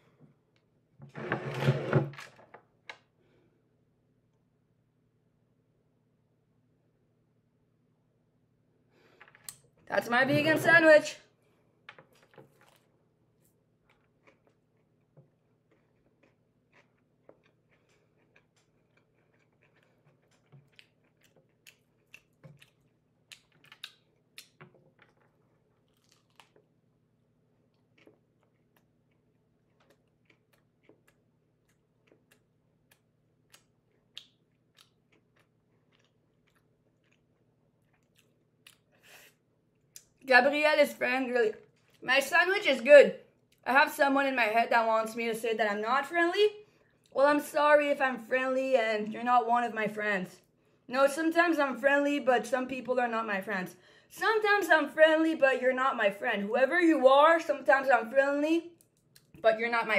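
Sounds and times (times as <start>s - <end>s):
person chewing sandwich: 12.1s - 40.2s.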